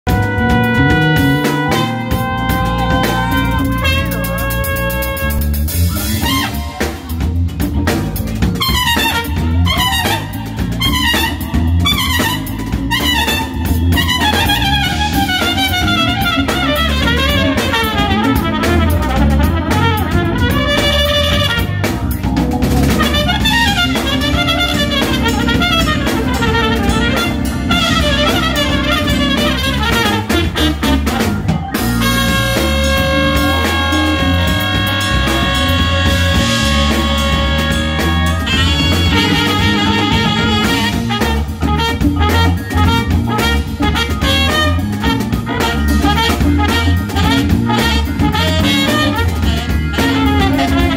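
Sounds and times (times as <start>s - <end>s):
drum kit: 0.0s - 50.9s
trumpet jazz solo: 0.0s - 50.9s.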